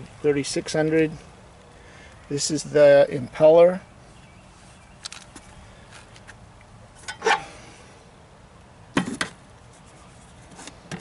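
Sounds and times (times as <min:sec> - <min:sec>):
low background noise: 0:00.0 - 0:11.0.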